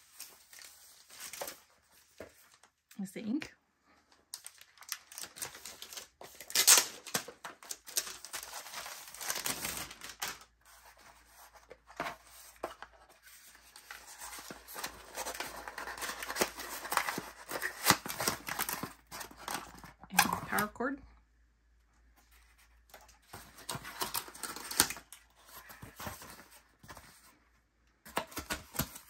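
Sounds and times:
plastic packaging crinkling: 4.1s - 11.0s, 13.3s - 20.3s.

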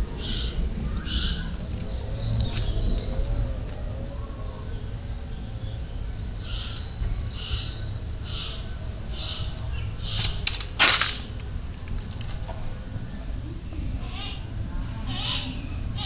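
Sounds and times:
birds chirping and whistling: 0.1s - 16.0s.

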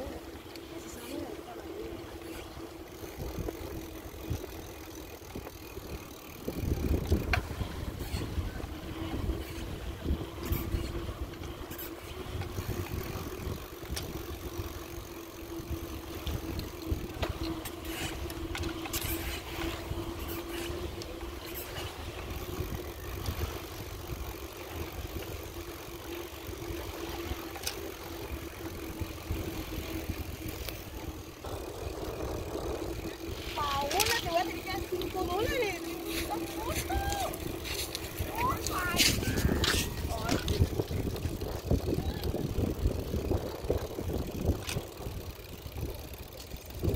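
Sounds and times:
steady hum: 0.0s - 46.9s
wind rumbling on microphone: 0.0s - 46.9s
light clicks and rattles: 33.4s - 46.9s.

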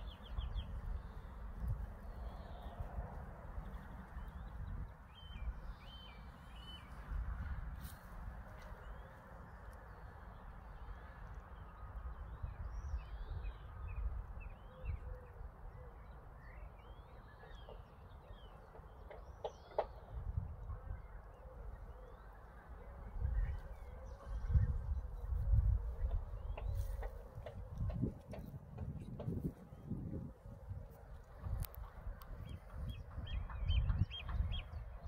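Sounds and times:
wind rumbling on microphone: 0.0s - 9.1s, 10.3s - 35.0s
small birds chirping: 23.4s - 30.0s.

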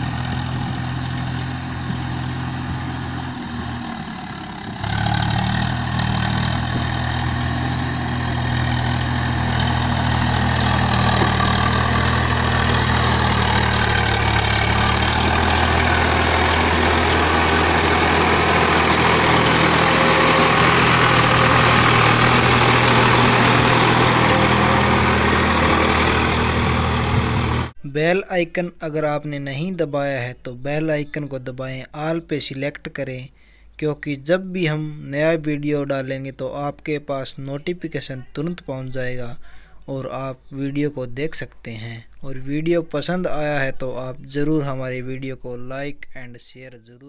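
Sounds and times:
tractor diesel engine passing: 0.0s - 27.8s.

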